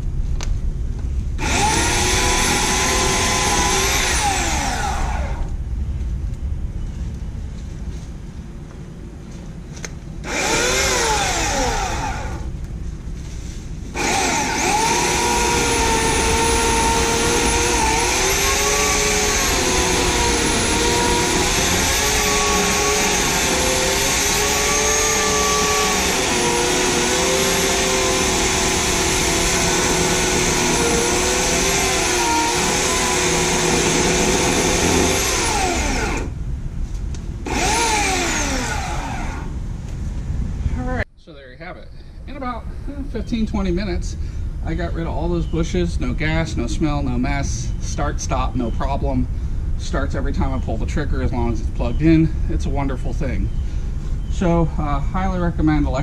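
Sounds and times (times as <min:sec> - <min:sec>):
electric chainsaw motor whining: 0:01.4 - 0:05.6, 0:10.2 - 0:12.5, 0:13.9 - 0:36.4, 0:37.4 - 0:39.6.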